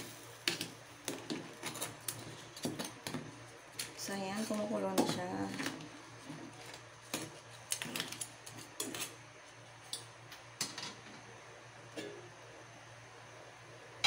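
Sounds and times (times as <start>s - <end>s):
liquid boiling with popping bubbles: 0.0s - 11.3s.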